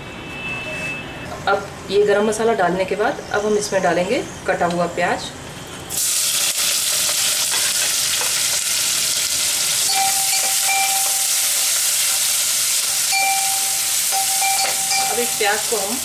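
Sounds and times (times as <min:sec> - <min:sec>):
onions sizzling in hot oil: 0:05.9 - 0:16.0.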